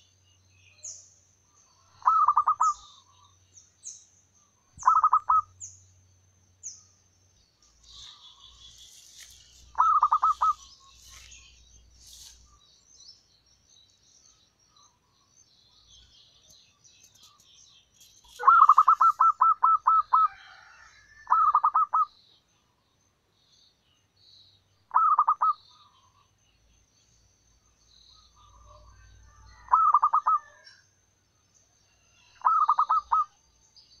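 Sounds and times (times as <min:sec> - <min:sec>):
small birds chirping: 0:00.0 - 0:34.0
dove staccato cooing: 0:01.9 - 0:02.9, 0:04.8 - 0:05.5, 0:09.7 - 0:10.7, 0:18.4 - 0:20.6, 0:21.3 - 0:22.1, 0:29.6 - 0:30.6, 0:32.4 - 0:33.3.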